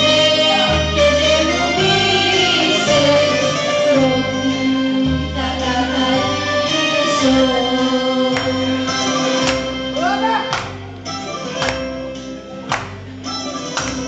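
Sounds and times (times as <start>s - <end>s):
person singing into a microphone: 0.0s - 9.4s
keyboard bass line and melody: 0.0s - 14.0s.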